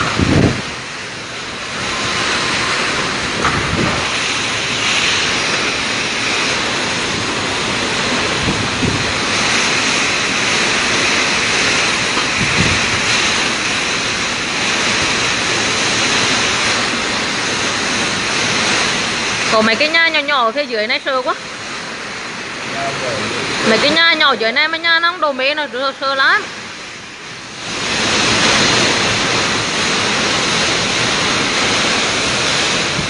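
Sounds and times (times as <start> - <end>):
gusts buffeting microphone: 0.0 - 33.0
wind and heavy rain: 0.0 - 33.0.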